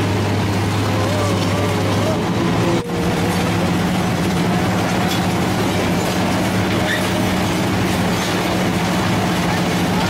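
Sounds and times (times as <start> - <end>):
shredder engine hum: 0.0 - 10.0
metal clattering and grinding: 2.8 - 10.0
faint metallic squeals: 6.0 - 7.4.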